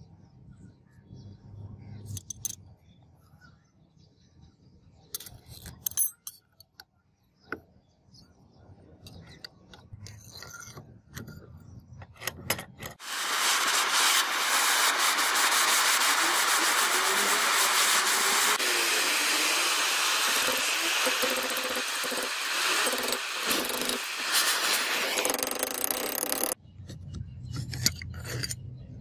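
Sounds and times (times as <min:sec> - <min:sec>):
gas torch hissing: 0:13.0 - 0:26.6.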